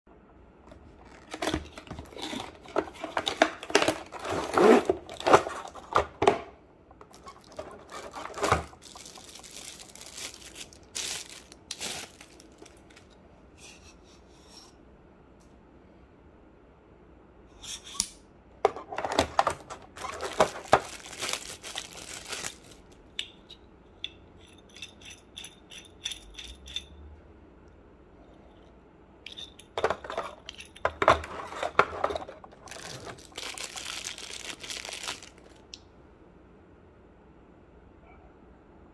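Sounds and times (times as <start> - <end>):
plastic packaging crinkling: 0.7 - 13.2, 18.9 - 23.2, 31.0 - 35.8
cardboard box being opened: 1.0 - 6.1, 31.4 - 34.1.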